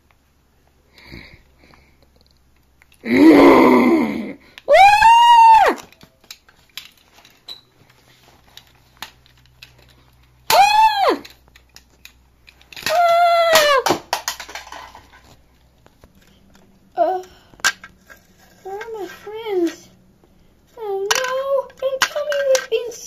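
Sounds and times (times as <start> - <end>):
child crying out: 3.0 - 5.9, 10.5 - 11.3, 12.8 - 14.0
toys clicking and knocking: 4.6 - 7.6, 8.4 - 20.0, 20.8 - 23.0.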